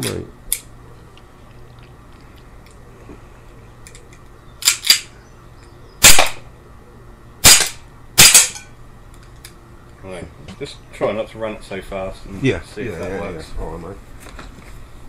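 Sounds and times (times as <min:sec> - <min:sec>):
pistol slide clacking: 0:04.6 - 0:05.1
airgun pistol shots: 0:06.0 - 0:06.5, 0:07.4 - 0:08.6.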